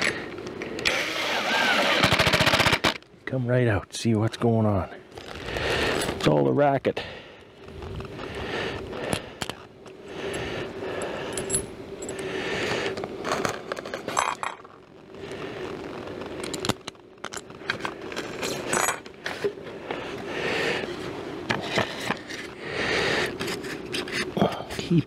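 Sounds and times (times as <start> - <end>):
faint steady hum: 0.0 - 25.0
metal screws clinking: 11.3 - 12.2.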